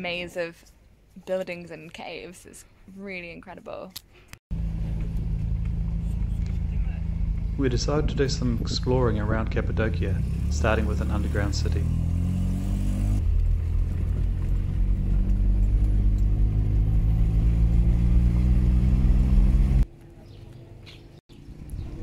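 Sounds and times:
car engine droning: 4.5s - 19.8s.

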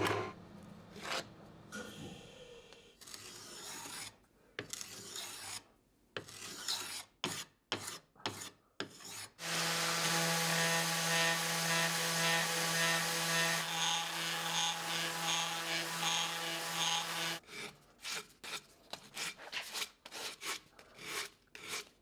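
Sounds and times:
hand rasp scraping wood: 3.0s - 22.0s
orbital sander humming: 9.4s - 17.4s.

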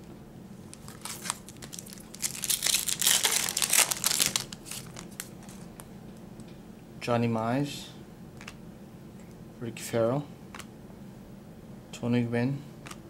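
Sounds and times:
foil wrapper crinkling and tearing: 0.7s - 5.7s.

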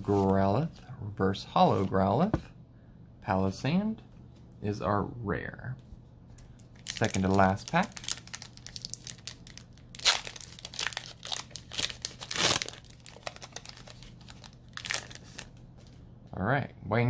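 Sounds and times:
foil wrapper crinkling and tearing: 6.7s - 15.6s.

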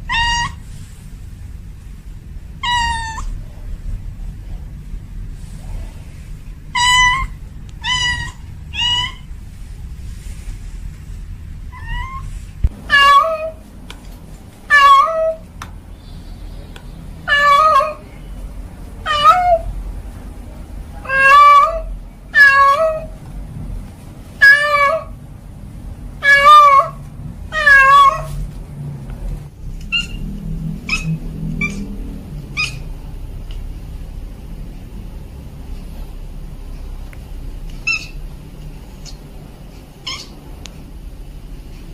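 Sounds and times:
cat meowing: 0.0s - 0.6s, 2.6s - 3.4s, 6.7s - 9.3s, 11.7s - 12.3s, 12.9s - 13.6s, 14.7s - 15.4s, 17.2s - 18.0s, 19.0s - 19.7s, 21.0s - 23.1s, 24.4s - 25.1s, 26.2s - 28.4s, 29.8s - 30.2s, 30.8s - 32.9s, 37.8s - 38.2s, 40.0s - 40.4s.

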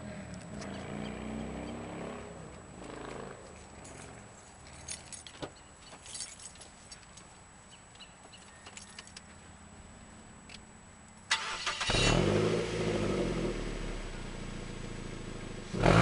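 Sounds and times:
car engine revving and idling: 0.0s - 4.2s, 11.3s - 16.0s.

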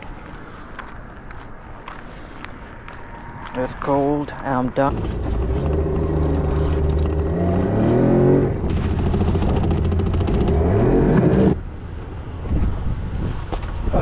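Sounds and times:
engine revving: 4.9s - 11.6s.

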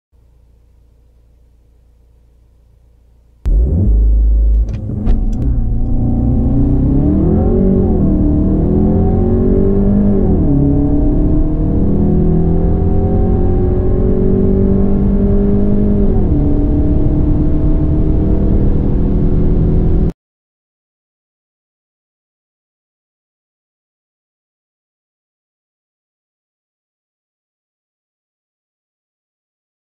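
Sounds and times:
car engine accelerating: 3.4s - 20.1s.

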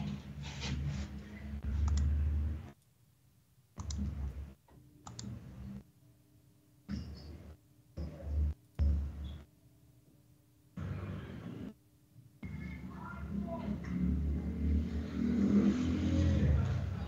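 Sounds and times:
sharp clicks: 1.8s - 2.1s, 3.8s - 4.1s, 5.0s - 5.4s.

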